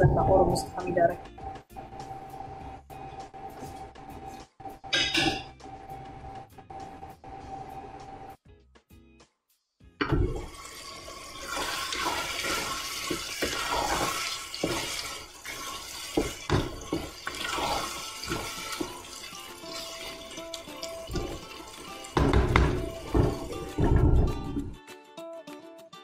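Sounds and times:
sauce sizzling and bubbling in pot: 0:10.2 - 0:24.6
wooden spoon knocking on pot: 0:16.1 - 0:17.5, 0:22.2 - 0:24.7.

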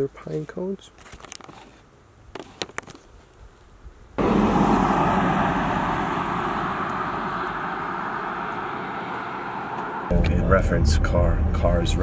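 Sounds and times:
motor vehicle rushing on road: 0:04.2 - 0:12.0.

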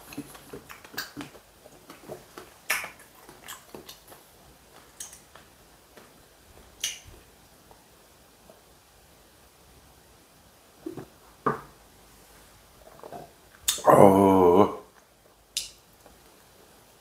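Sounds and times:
soft chewing: 0:00.0 - 0:08.7.

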